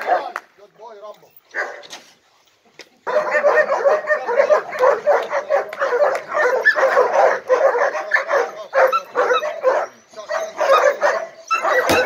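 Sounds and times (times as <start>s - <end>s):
dogs barking and yipping: 1.4s - 2.0s, 3.0s - 12.0s.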